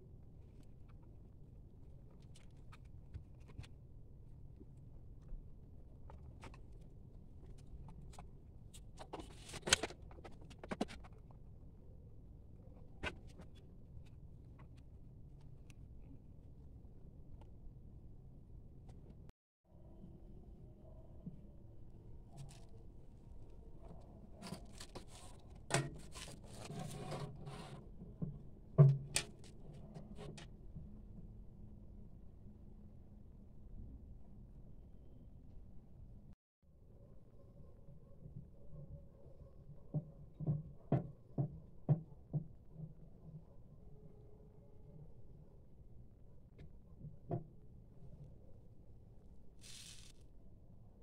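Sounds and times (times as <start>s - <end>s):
plastic scrape: 24.4s - 28.0s.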